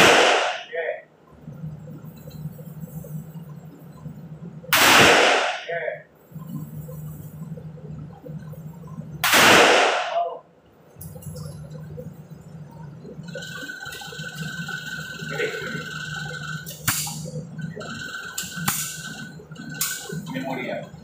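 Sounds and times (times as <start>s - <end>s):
handgun shots echoing indoors: 0.0s - 0.7s, 4.7s - 5.8s, 9.2s - 10.3s, 16.8s - 17.2s, 18.7s - 19.0s
steady low hum: 0.0s - 21.0s.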